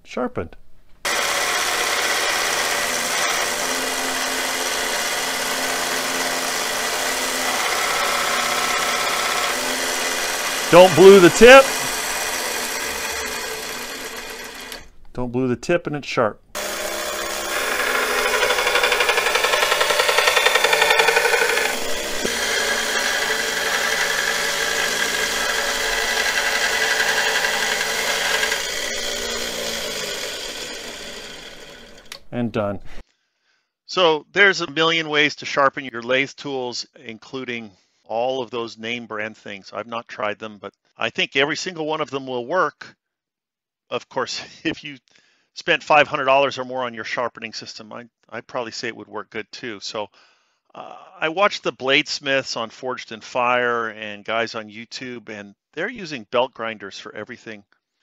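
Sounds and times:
belt grinder grinding hiss: 1.0 - 14.9, 16.6 - 32.2
motor hum: 1.1 - 14.9, 16.6 - 32.3.

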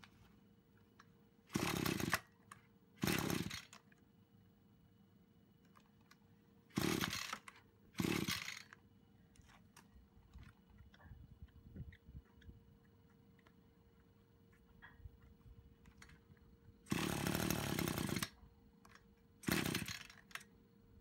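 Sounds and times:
small engine pull-start cranking: 1.5 - 2.3, 3.0 - 3.8, 6.7 - 8.8, 16.9 - 18.4, 19.4 - 20.4.

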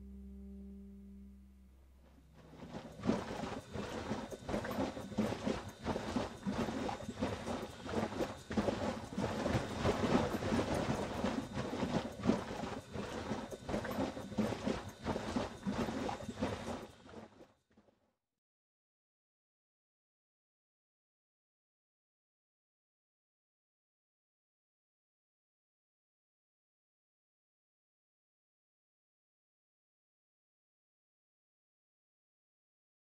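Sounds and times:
milk sloshing and thumping in bag: 2.5 - 17.3.

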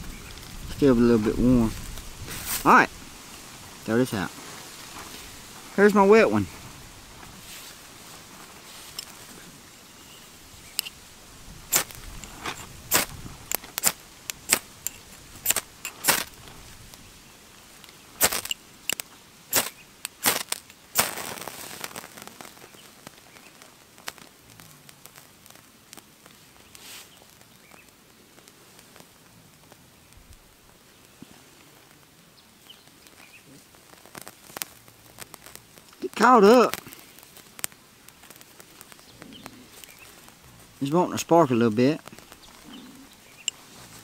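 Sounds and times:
scraper striking ferrocerium rod: 11.7 - 16.4, 18.2 - 21.3.

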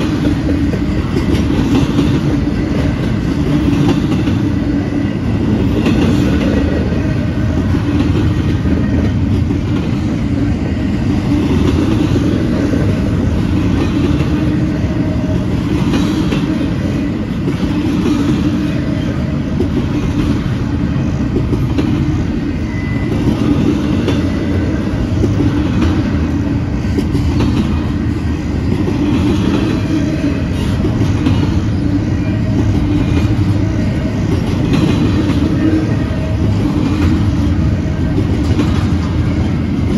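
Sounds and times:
train wheels rumbling on rails: 0.0 - 39.9.

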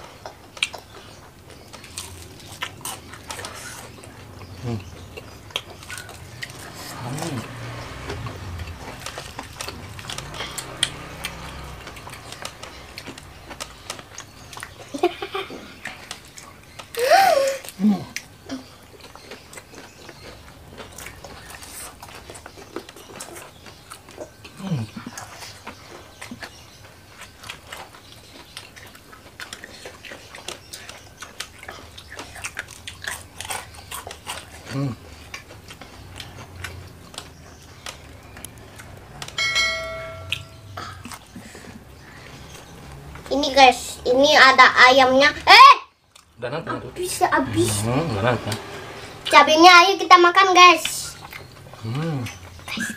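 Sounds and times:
fried food crunching when chewed: 0.0 - 39.4, 40.4 - 43.3.

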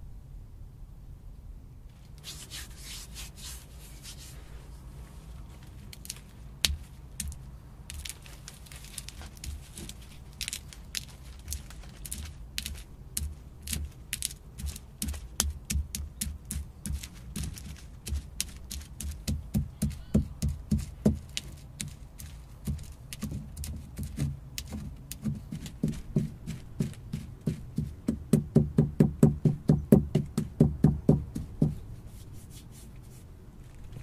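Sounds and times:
nuts cracking: 5.8 - 27.6
stone pestle pounding nuts: 6.0 - 31.8.

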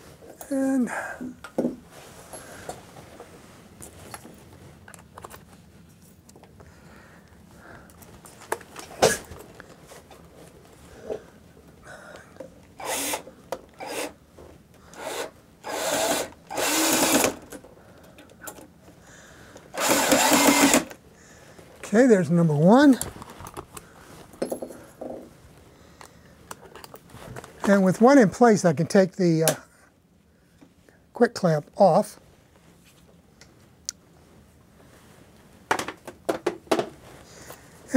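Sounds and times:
cordless drill driving a screw: 12.8 - 14.2, 15.0 - 17.5, 19.8 - 21.0.

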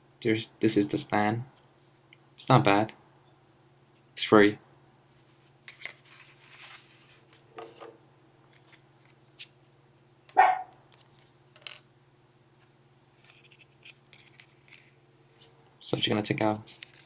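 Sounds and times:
dog barking: 10.4 - 10.8.

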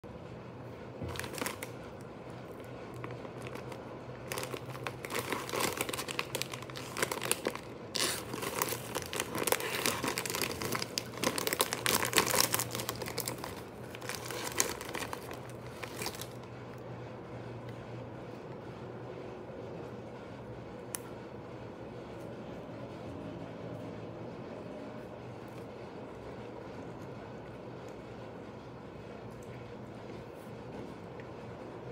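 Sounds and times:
plastic wrapper crinkling: 1.0 - 16.5.

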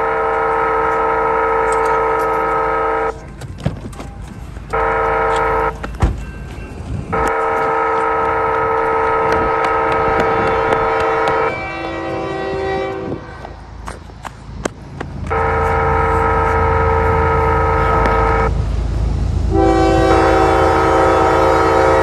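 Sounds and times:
railroad crossing horn blasts: 0.0 - 3.3, 4.7 - 5.8, 7.1 - 13.6, 15.2 - 18.6, 19.5 - 22.0.

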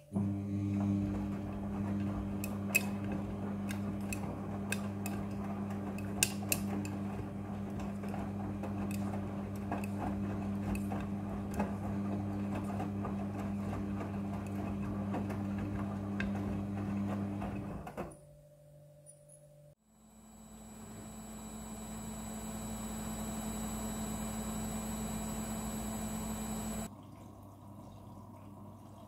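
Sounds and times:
washing machine motor hum: 0.0 - 18.1, 19.9 - 26.9.

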